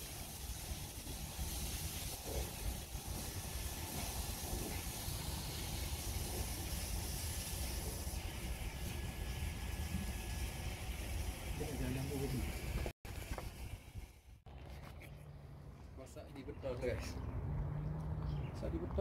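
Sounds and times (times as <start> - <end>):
wood fire hissing: 0.0 - 14.4.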